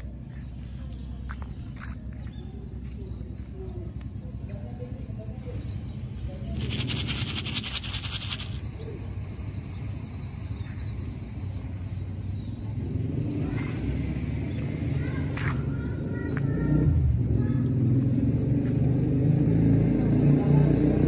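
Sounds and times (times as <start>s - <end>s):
low rumble of road traffic: 0.0s - 21.0s
vehicle approaching: 0.0s - 21.0s
high rapidly pulsing buzz: 6.6s - 8.6s.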